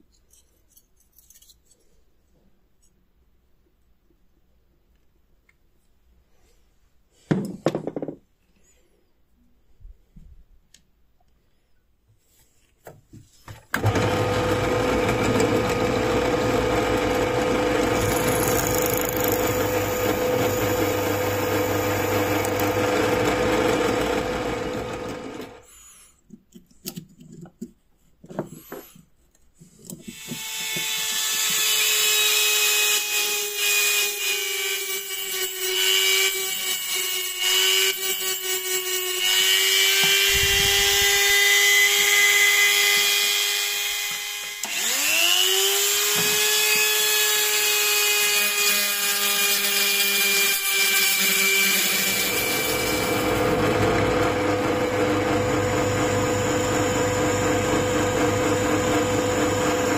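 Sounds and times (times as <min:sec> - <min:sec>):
drill press drilling into metal: 0:13.8 - 0:25.6, 0:51.7 - 0:59.9
power tool running: 0:13.8 - 0:25.7, 0:37.4 - 0:59.9.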